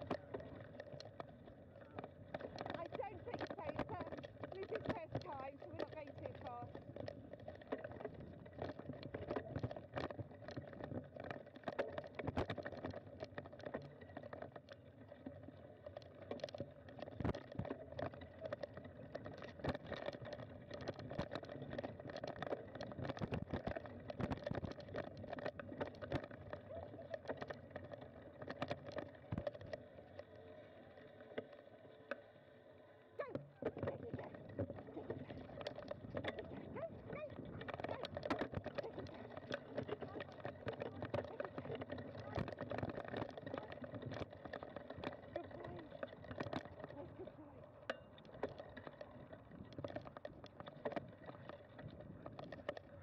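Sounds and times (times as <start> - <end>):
bicycle rattling on dirt trail: 0.0 - 53.0.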